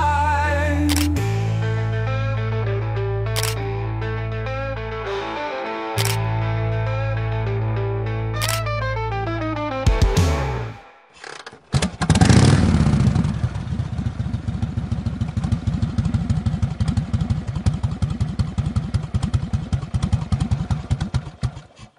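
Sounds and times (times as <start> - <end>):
motorcycle engine starting and idling: 11.2 - 21.9.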